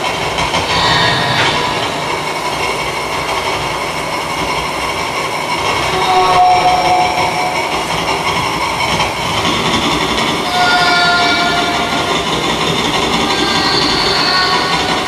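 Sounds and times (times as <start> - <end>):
dense wash of noise: 0.0 - 11.0
low rumble: 0.5 - 3.8
thin held tones: 5.9 - 9.2.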